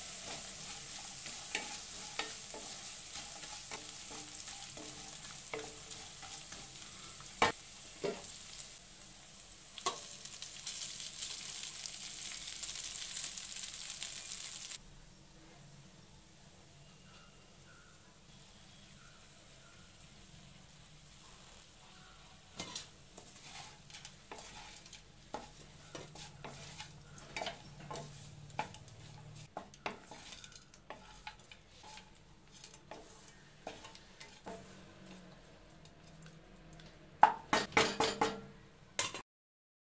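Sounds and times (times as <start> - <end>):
spatula scraping a pan: 0.0 - 8.8, 21.1 - 35.7
knocks on a pan: 37.2 - 38.5.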